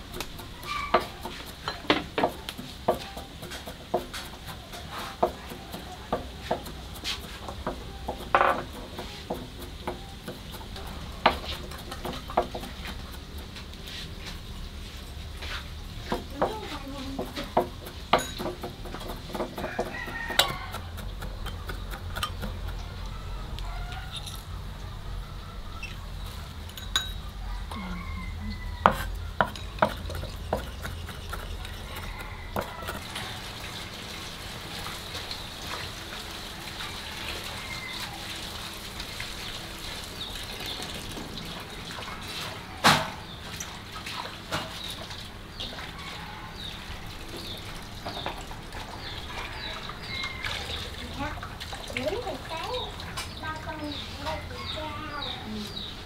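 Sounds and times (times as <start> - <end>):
knife chopping on wooden board: 0.0 - 13.7, 16.1 - 23.0, 28.8 - 33.4
metal spoon tapping and scraping: 0.0 - 13.8, 16.1 - 23.1, 26.7 - 27.3, 28.8 - 33.3.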